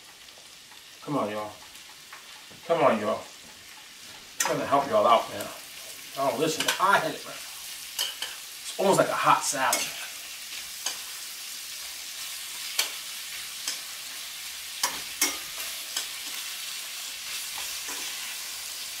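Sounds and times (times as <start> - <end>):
vegetables sizzling in skillet: 0.0 - 19.0
metal tongs clicking against pan: 3.6 - 4.6, 6.6 - 6.9, 8.0 - 8.4, 9.7 - 11.2, 12.5 - 18.4.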